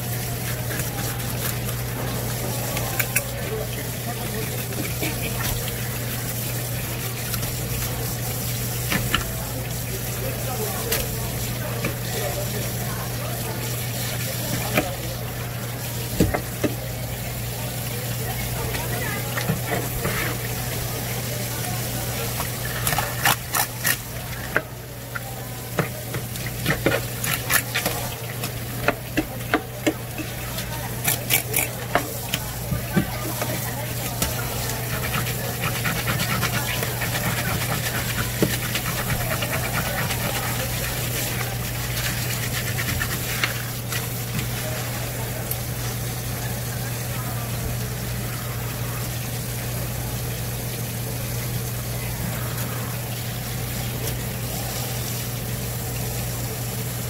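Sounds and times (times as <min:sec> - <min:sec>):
water running: 0:00.0 - 0:57.0
knife clicking and scraping board: 0:31.0 - 0:32.1.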